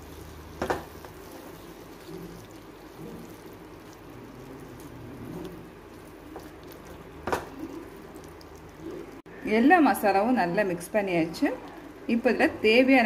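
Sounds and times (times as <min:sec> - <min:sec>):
spatula stirring in frying pan: 0:00.0 - 0:09.3
low sizzling: 0:00.0 - 0:13.0.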